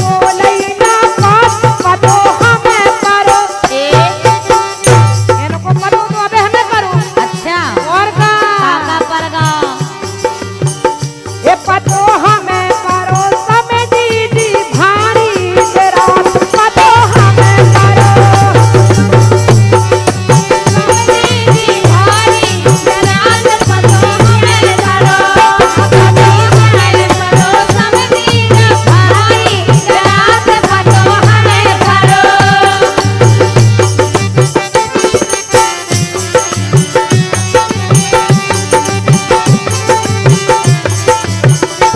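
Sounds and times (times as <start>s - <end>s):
woman singing: 0.0s - 10.2s, 11.4s - 19.4s, 20.3s - 33.8s
hand drum: 0.0s - 41.9s
harmonium: 0.0s - 41.9s
jingling rattle percussion: 0.0s - 41.9s.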